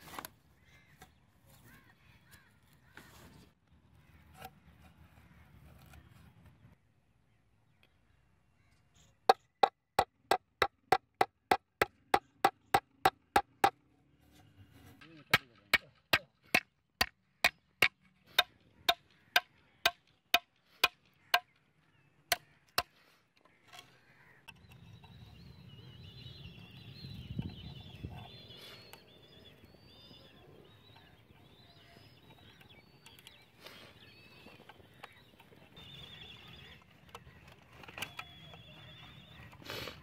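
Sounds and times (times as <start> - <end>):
hammer striking steel nail: 9.3 - 13.7
faint bird chirps: 22.4 - 40.0.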